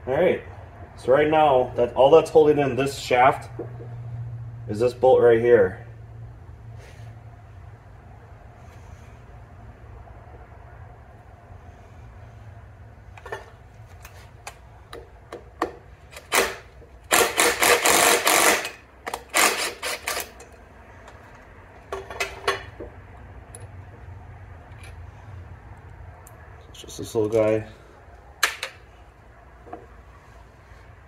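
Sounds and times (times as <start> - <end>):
impact driver hammering: 15.0 - 20.3.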